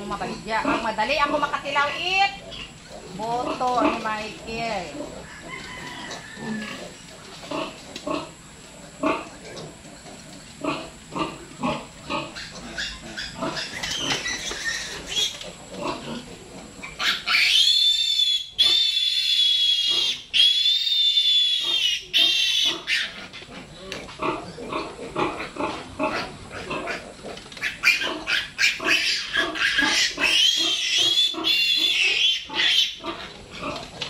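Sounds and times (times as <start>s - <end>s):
pigs grunting: 0.0s - 34.0s
piglet squealing: 12.4s - 15.4s, 16.8s - 23.3s, 27.6s - 33.3s.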